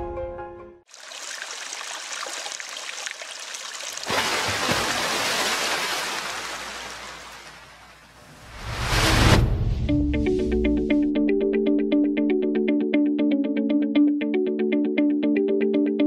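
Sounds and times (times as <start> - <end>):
water splashing and trickling: 0.9 - 8.5.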